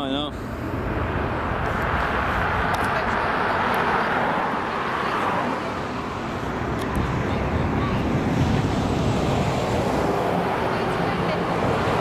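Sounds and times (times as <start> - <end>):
jet engine rushing: 0.0 - 12.0.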